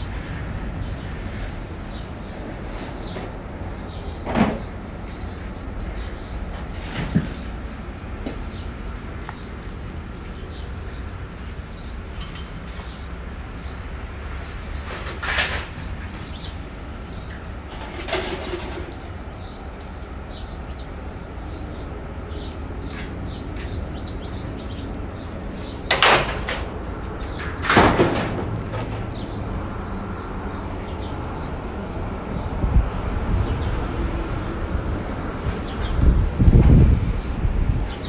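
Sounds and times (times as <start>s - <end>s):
short bangs or scrapes: 14.8s - 16.0s.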